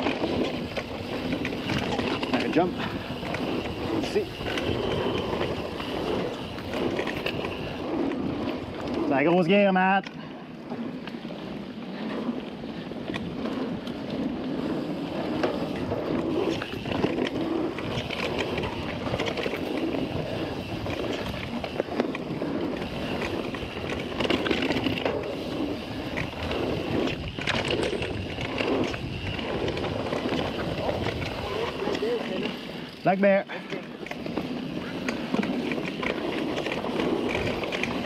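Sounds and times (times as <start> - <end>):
bike knocking and rattling: 0.0 - 38.0
bike tyres on dirt: 0.0 - 38.0.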